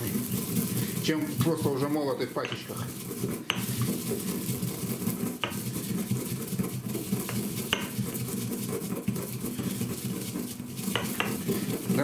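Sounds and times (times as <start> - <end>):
pestle grinding seeds: 0.0 - 12.0
pestle clinking against mortar: 2.3 - 4.2, 5.3 - 6.4, 7.0 - 9.1, 10.8 - 12.0.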